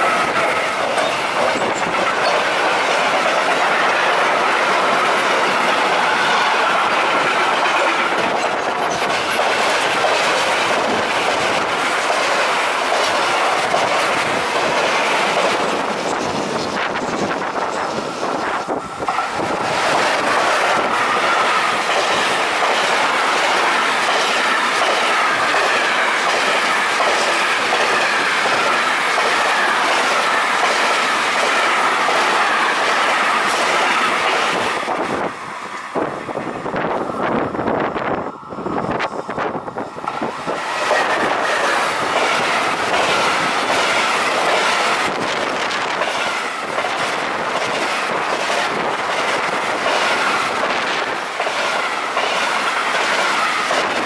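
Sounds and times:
clickety-clack over rail joints: 0:00.0 - 0:38.1, 0:39.0 - 0:54.0
rumble of train wheels on rail: 0:00.0 - 0:54.0.

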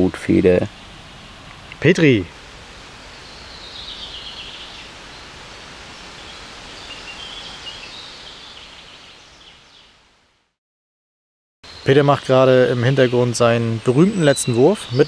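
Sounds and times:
birds singing faintly: 0:00.0 - 0:10.1, 0:11.6 - 0:15.0
steady outdoor background noise: 0:00.0 - 0:10.2, 0:11.6 - 0:15.0.

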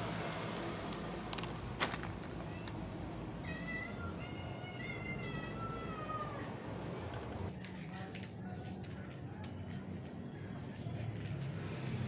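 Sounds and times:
plastic bag crackle: 0:00.9 - 0:02.8
cats meowing: 0:03.4 - 0:06.6.

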